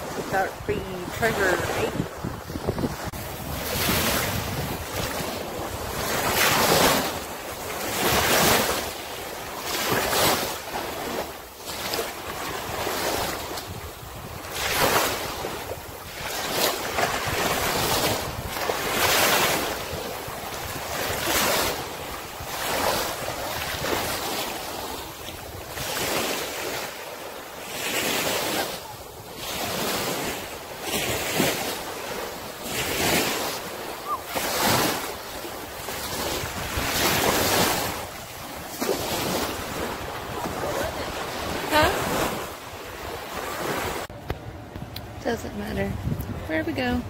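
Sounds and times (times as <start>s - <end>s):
wind buffeting microphone: 0.0s - 8.8s, 12.3s - 26.2s, 33.7s - 47.0s
small waves washing ashore: 0.0s - 47.0s.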